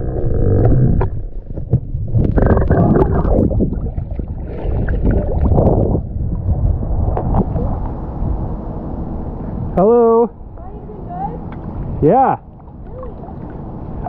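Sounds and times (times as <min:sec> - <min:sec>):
water splashing and gurgling: 0:00.0 - 0:08.3, 0:12.4 - 0:14.0
rumble on microphone: 0:00.0 - 0:09.8.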